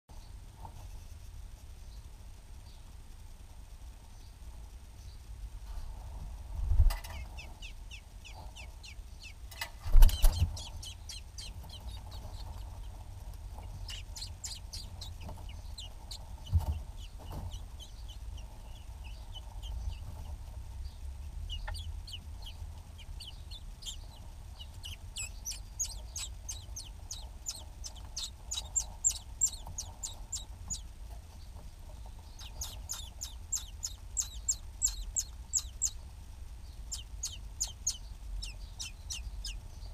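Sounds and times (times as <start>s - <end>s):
nestlings cheeping: 7.0s - 31.0s, 31.9s - 39.9s.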